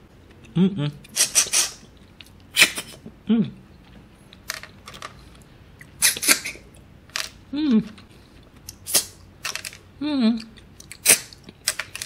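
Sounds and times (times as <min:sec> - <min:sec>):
person humming: 0:00.4 - 0:01.5, 0:03.2 - 0:03.6, 0:07.5 - 0:08.1, 0:10.0 - 0:10.6.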